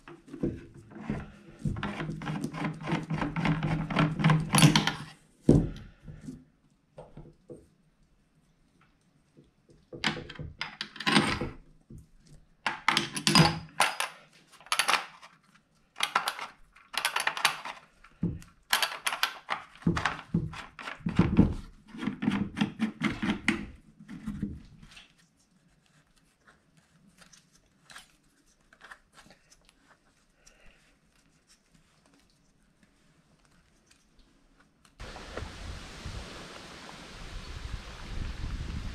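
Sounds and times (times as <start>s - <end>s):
air rifle handling clicks and rattles: 3.0s - 5.2s, 12.7s - 15.3s, 16.0s - 17.9s, 18.7s - 21.4s.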